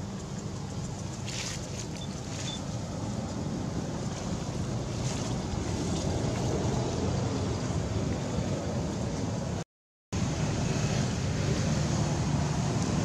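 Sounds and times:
wind buffeting microphone: 0.3s - 9.6s.

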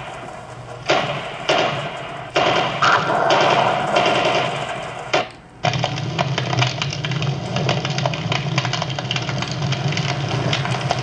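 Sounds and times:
fire crackling: 0.0s - 11.0s.

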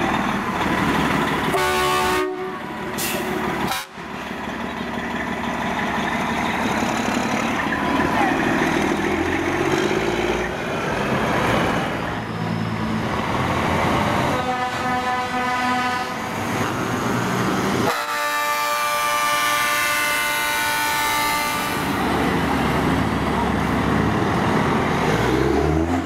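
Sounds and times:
truck engines running: 0.0s - 26.0s
truck air horns: 1.5s - 4.0s, 14.0s - 16.3s, 17.8s - 22.0s.

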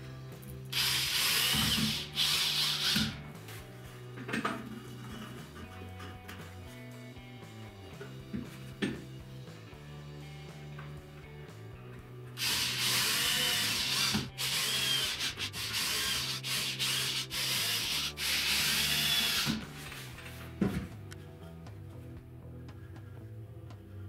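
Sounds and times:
cordless drill whirring into wood: 0.7s - 3.2s, 12.4s - 19.6s
guitar music: 1.8s - 18.5s.

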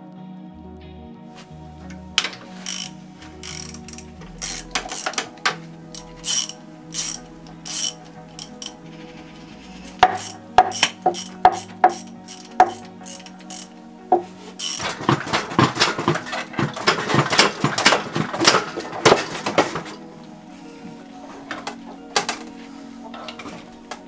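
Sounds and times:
background music: 0.0s - 24.0s
hand ratchet clicking: 1.8s - 8.8s, 9.8s - 13.8s, 14.5s - 20.0s.

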